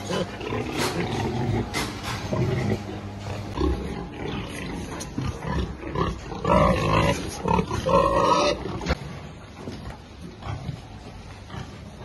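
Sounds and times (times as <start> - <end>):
pigs grunting: 0.0 - 9.0
pig squealing: 5.5 - 8.9.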